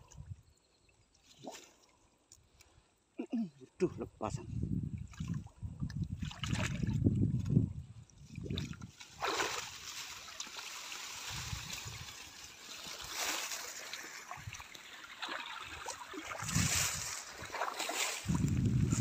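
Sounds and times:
river water splashing: 6.2 - 7.0, 8.2 - 18.5.

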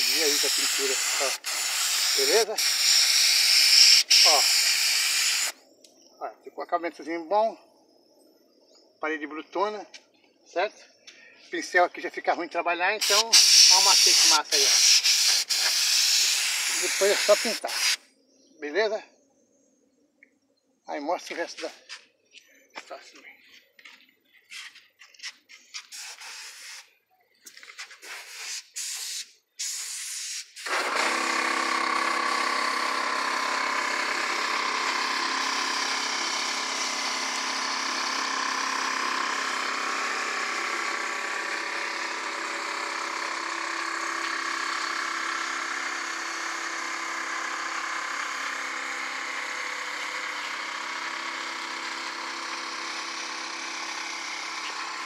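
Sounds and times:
paint spray gun hissing: 0.0 - 5.6, 13.0 - 18.0, 25.7 - 26.9, 27.8 - 55.0
loud steady motor drone: 31.7 - 55.0.

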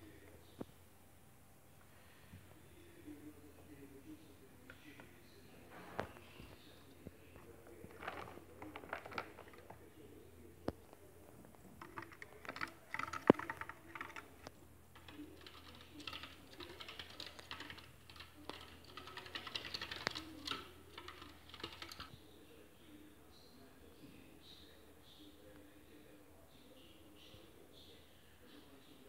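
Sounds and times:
claws pattering on wooden wheel: 7.4 - 9.8, 10.9 - 22.2.

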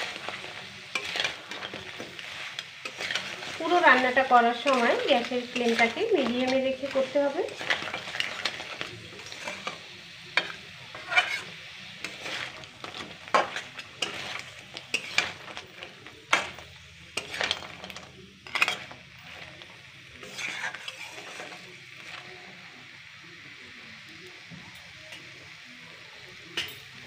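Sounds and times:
metal spatula scraping a pan: 0.0 - 22.4
faint frying sizzle: 0.0 - 27.0.

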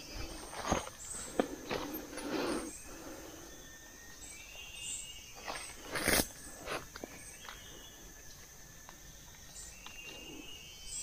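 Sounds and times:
insects buzzing faintly: 0.0 - 11.0
branches and leaves rustling and snapping: 5.4 - 10.0.

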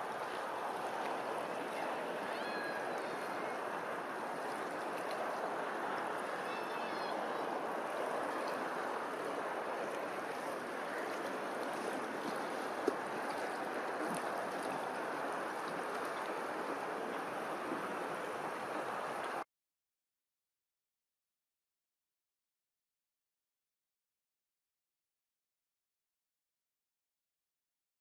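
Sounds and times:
water lapping: 0.0 - 19.4.

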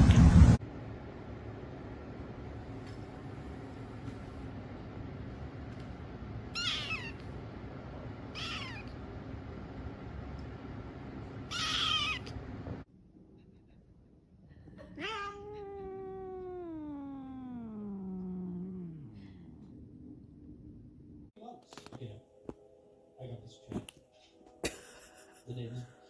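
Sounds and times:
steady background hum: 0.0 - 26.0
cat long meow: 6.6 - 7.2, 8.3 - 9.0, 11.5 - 12.4, 15.0 - 19.2
kitten mewing: 6.6 - 7.2, 8.3 - 9.0, 11.5 - 12.4, 15.0 - 19.7.

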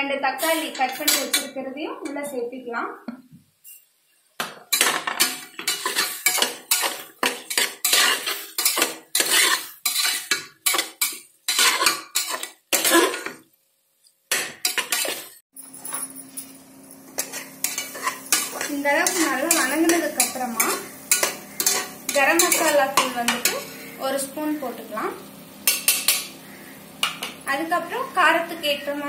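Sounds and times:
spatula scraping metal pot: 4.7 - 13.4, 14.3 - 15.4, 17.1 - 24.0.

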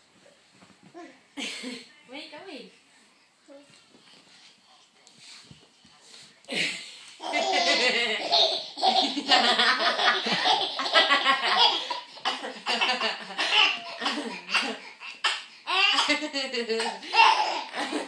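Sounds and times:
baby laughing: 7.2 - 18.0.

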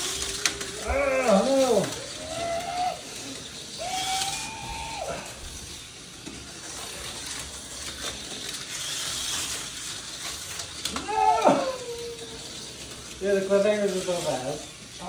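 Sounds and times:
slot car motors whirring: 0.0 - 15.0.

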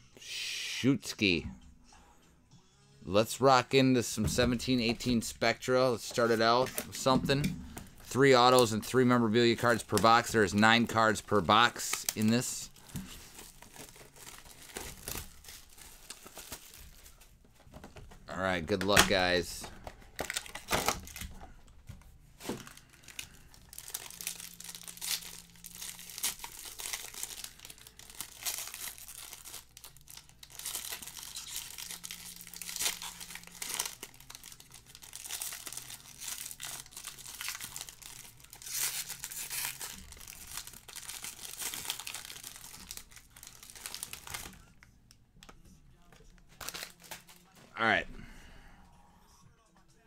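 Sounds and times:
foil wrapper tearing and crinkling: 7.8 - 17.2, 20.2 - 21.3, 22.6 - 44.6, 46.6 - 47.5.

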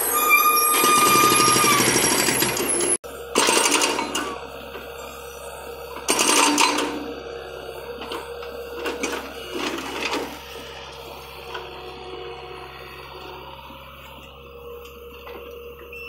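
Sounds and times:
machine humming: 0.0 - 16.0
hydraulic breaker hammering concrete: 0.7 - 4.4, 6.0 - 7.1.

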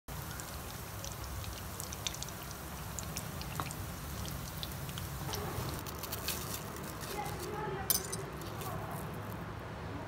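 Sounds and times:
deep-frying oil sizzling: 0.1 - 6.2
oil pops and crackles: 0.1 - 7.5.

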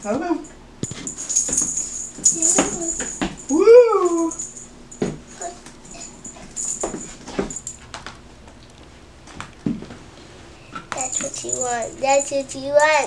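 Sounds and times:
small bell jingling: 0.8 - 7.9, 11.0 - 13.0.

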